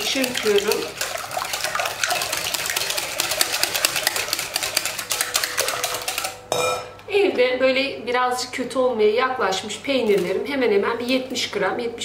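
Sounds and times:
batter sloshing: 0.0 - 6.4
whisk clicking against glass bowl: 0.0 - 6.5.

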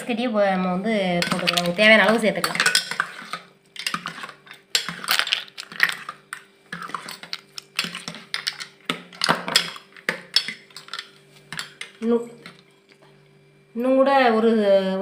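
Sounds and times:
ladle clinking ice in metal pot: 1.2 - 12.6.

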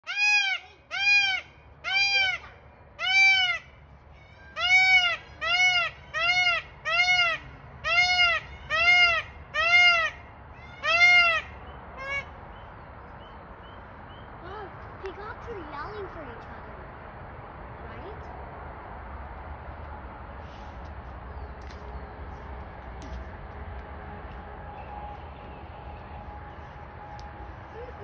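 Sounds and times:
peafowl calling: 0.0 - 12.4.

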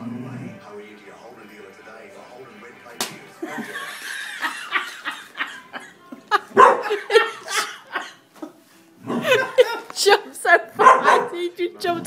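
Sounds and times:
dog barking: 6.5 - 7.1, 9.0 - 9.6, 10.7 - 11.5.

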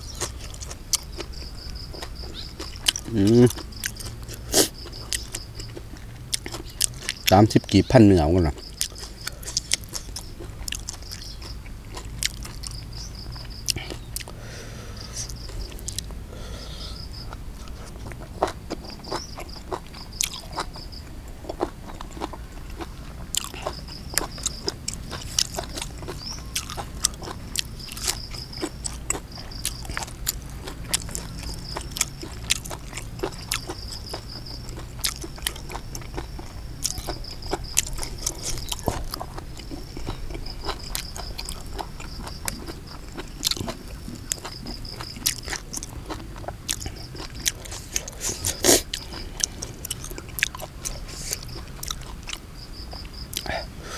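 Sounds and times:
sharp crunches: 0.0 - 14.3, 21.4 - 53.9
person chewing and biting: 0.0 - 53.7.

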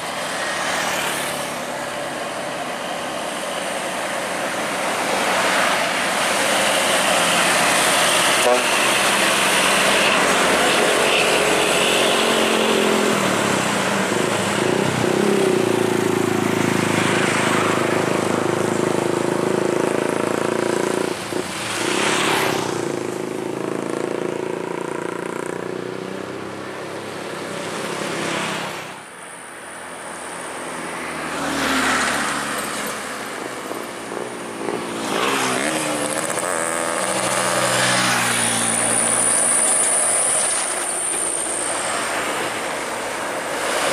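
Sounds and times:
diesel trucks labouring uphill: 0.0 - 30.7
motorcycles passing: 0.0 - 43.9.

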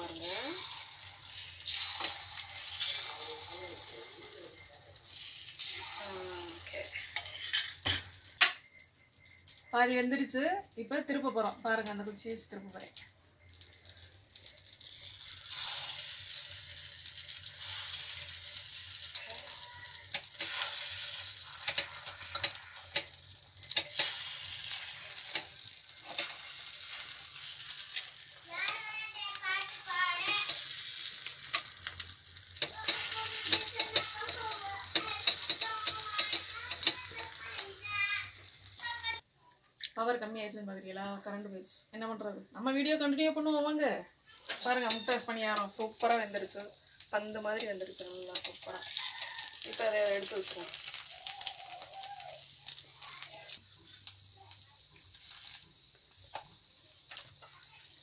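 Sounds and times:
batter sizzling in hot oil: 0.0 - 39.3, 40.0 - 58.0
stick tapping pan: 32.6 - 37.2.

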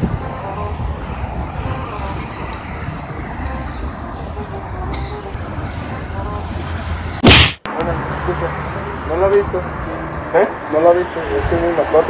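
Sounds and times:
road traffic noise: 0.0 - 12.0
brief loud burst: 7.2 - 7.7.

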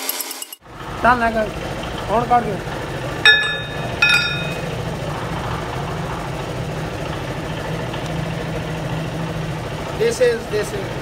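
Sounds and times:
engine idling hum: 0.6 - 11.0
ringing clang of struck steel: 3.3 - 4.7.

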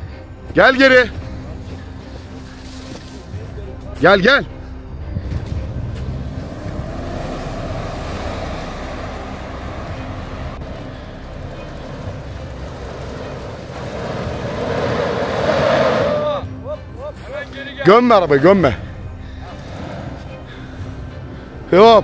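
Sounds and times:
engine running under load: 5.1 - 16.5.

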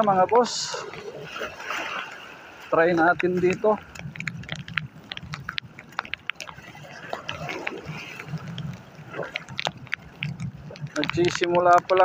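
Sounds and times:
waves washing over concrete: 0.0 - 12.0
wind: 0.0 - 12.0
sharp clicks and ticks: 3.0 - 12.0.

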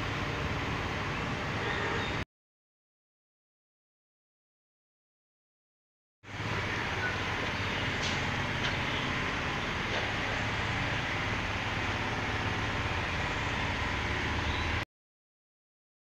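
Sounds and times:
road traffic rumble: 0.0 - 2.2, 6.2 - 14.8.

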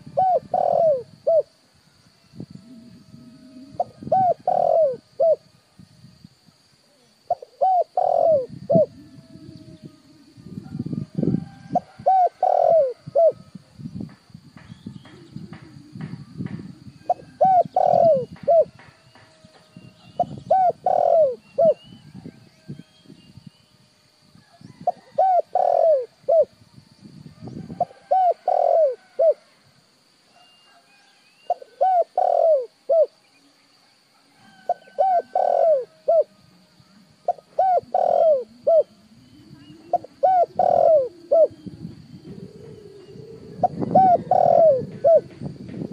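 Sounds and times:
dove cooing: 0.0 - 1.6, 2.3 - 5.5, 6.9 - 13.6, 14.8 - 22.7, 24.6 - 26.6, 27.4 - 29.4, 31.5 - 33.2, 34.4 - 45.9.

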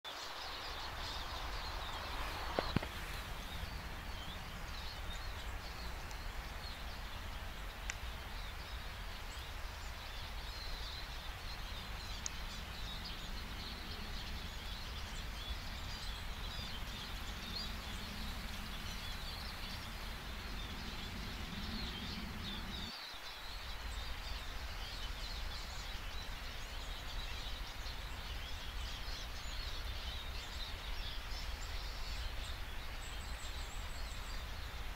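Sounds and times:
low rumble: 11.2 - 22.9.

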